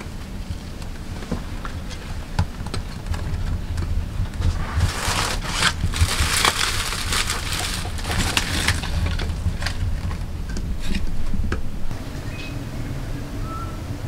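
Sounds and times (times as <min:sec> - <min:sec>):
steady low rumble: 0:00.0 - 0:14.0
dry sticks crunching and crackling: 0:01.6 - 0:11.2.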